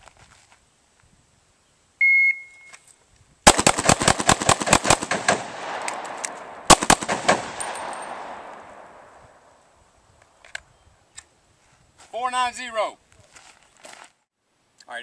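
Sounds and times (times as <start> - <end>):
pistol shots with echo: 3.5 - 9.4.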